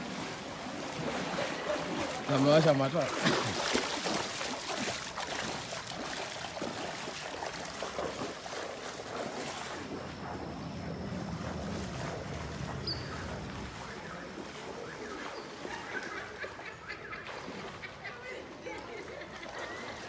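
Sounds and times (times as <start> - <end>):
people wading through water: 0.0 - 20.0.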